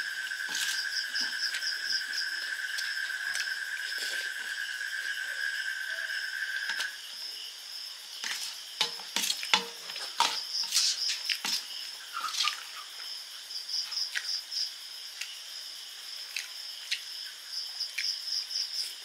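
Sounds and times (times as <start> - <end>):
spoon scraping a steel plate: 0.5 - 0.8, 8.2 - 12.6.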